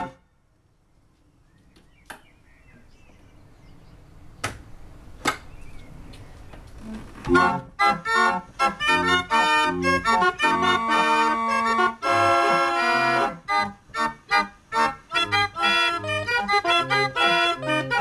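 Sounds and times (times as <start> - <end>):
barrel organ playing: 0.0 - 0.2, 6.8 - 18.0.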